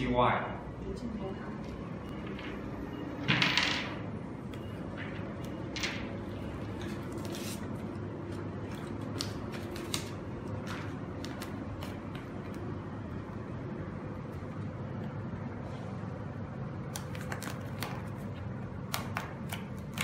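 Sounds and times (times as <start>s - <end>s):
low room hum: 0.0s - 20.0s
paper backing rustling: 6.6s - 12.5s.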